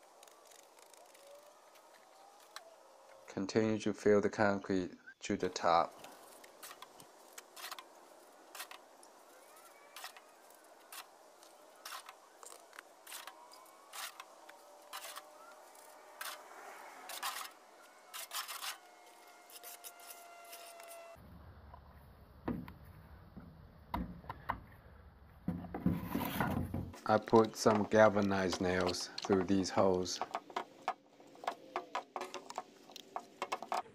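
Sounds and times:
wet concrete clicks and scrapes: 0:06.0 - 0:16.5, 0:17.1 - 0:20.9, 0:27.0 - 0:33.9.

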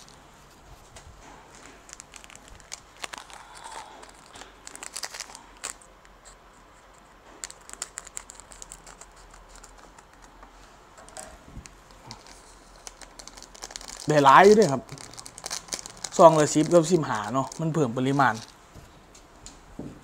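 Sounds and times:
plastic sachets crinkling: 0:01.4 - 0:06.4, 0:07.3 - 0:10.4, 0:11.6 - 0:18.6.

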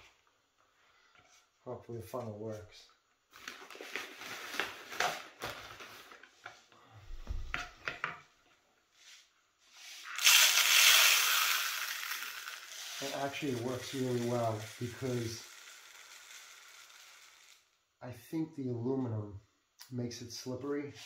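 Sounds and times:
low thump: 0:07.1 - 0:07.6
pellets pouring into plastic bottle: 0:10.0 - 0:17.7.

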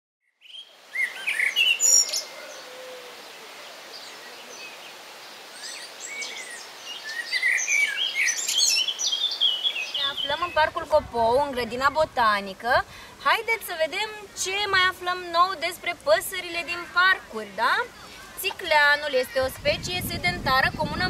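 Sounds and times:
songbirds chirping and singing: 0:00.3 - 0:12.2
steady outdoor hiss: 0:00.3 - 0:21.0.

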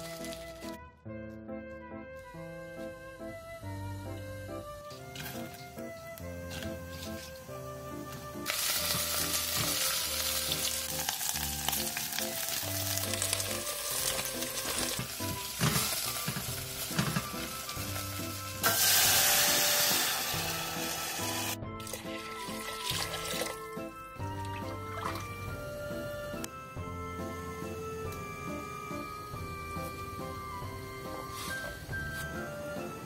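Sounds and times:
onions sizzling in oil: 0:06.5 - 0:21.6.

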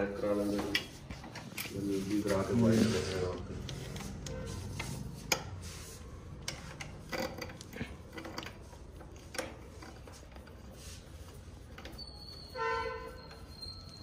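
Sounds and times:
rubbing: 0:00.0 - 0:14.0
clicks and knocks of tools handled: 0:06.4 - 0:10.7.

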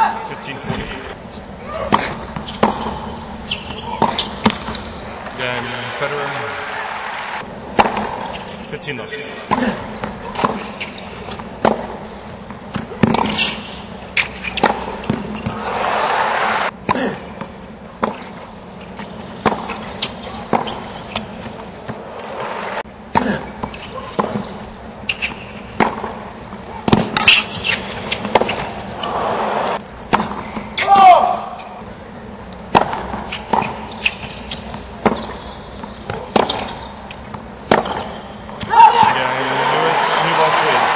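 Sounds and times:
tennis ball hit by rackets: 0:01.9 - 0:05.4, 0:07.7 - 0:08.2, 0:09.5 - 0:15.7, 0:19.4 - 0:24.4, 0:25.1 - 0:26.2, 0:26.8 - 0:30.9, 0:32.7 - 0:35.3, 0:36.0 - 0:38.8
crowd noise: 0:01.9 - 0:10.7, 0:14.6 - 0:17.3, 0:21.8 - 0:22.9, 0:28.9 - 0:29.8, 0:38.9 - 0:40.9.

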